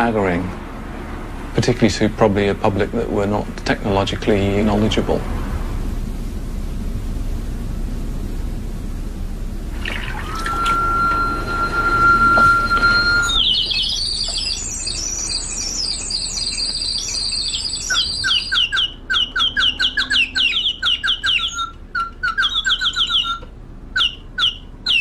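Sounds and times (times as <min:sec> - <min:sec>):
steady whistle with hiss: 0:06.1 - 0:23.4
mechanical bird chirps: 0:09.8 - 0:25.0.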